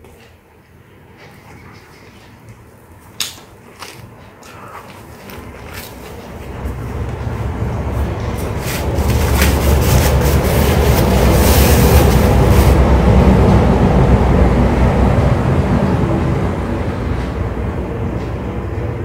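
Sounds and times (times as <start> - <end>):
loud low rumble: 6.7 - 19.0
paper napkin crumpling: 8.3 - 12.8.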